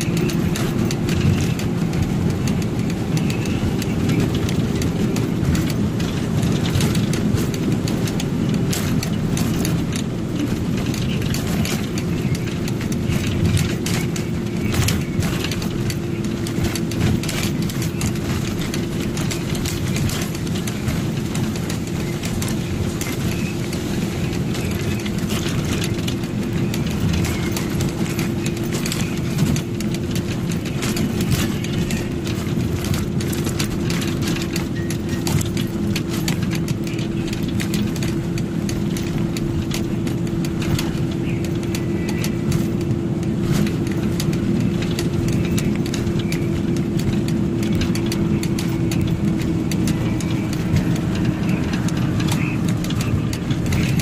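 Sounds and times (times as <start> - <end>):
truck engine drone: 0.0 - 54.0.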